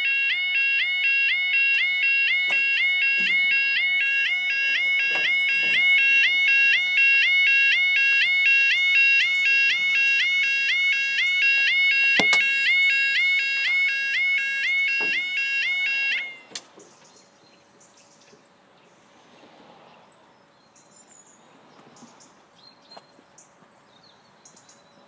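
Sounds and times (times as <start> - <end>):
level crossing yodel alarm: 0.0 - 16.5
sharp knocks: 2.5 - 3.5, 12.2 - 12.5, 15.0 - 15.3.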